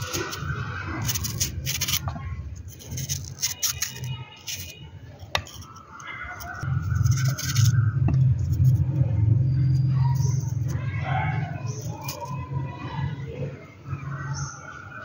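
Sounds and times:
vegetable peeling scrapes: 0.0 - 9.0
low hum: 6.6 - 12.4
faint background voices: 8.6 - 15.0.

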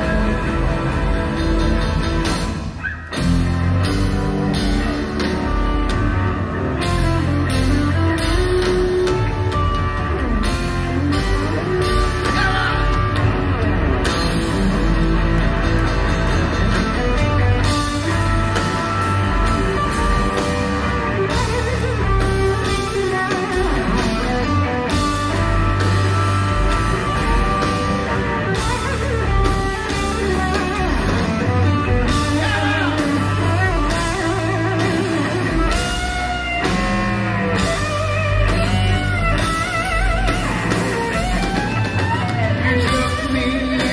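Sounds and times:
rock band playing: 0.0 - 43.9
man singing: 32.2 - 33.4, 42.6 - 43.9.

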